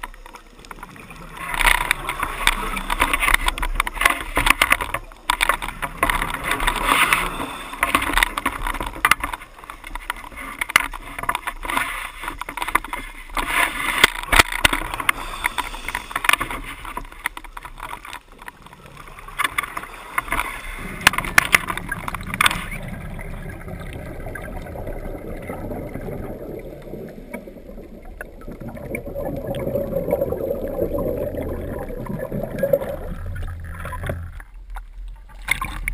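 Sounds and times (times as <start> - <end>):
crackly bubbling of exhaled breath: 0.0 - 35.9
muffled underwater sound: 18.3 - 35.9.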